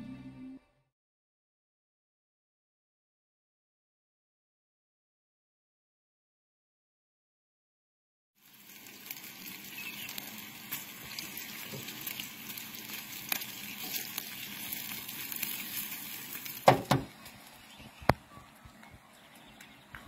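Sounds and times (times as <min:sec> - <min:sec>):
bacon sizzling in frying pan: 0:08.4 - 0:17.9.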